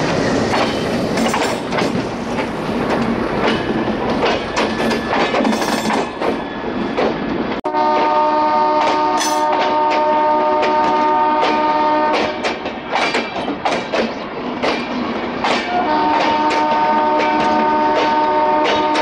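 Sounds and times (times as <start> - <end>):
train clattering: 0.0 - 19.0
locomotive air horn: 7.6 - 12.4, 15.7 - 19.0.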